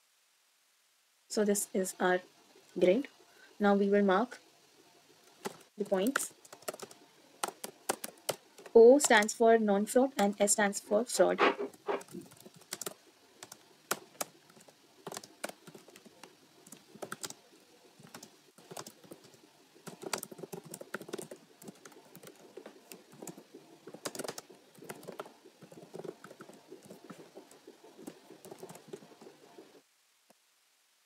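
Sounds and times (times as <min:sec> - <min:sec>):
keyboard typing: 0:05.3 - 0:09.4, 0:11.4 - 0:17.4, 0:18.0 - 0:29.8.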